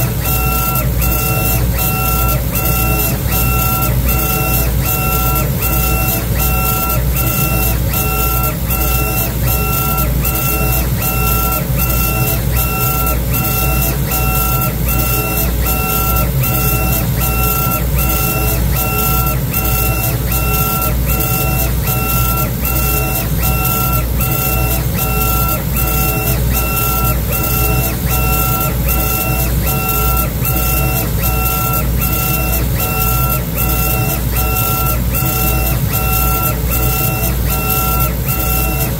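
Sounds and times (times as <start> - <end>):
laser engraver whirring: 0.0 - 38.9
motor whine: 0.0 - 38.9.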